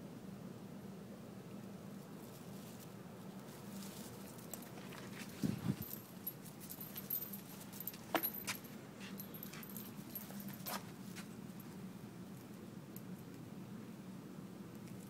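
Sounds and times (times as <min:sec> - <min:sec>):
leash hardware jingling: 0:03.5 - 0:11.7.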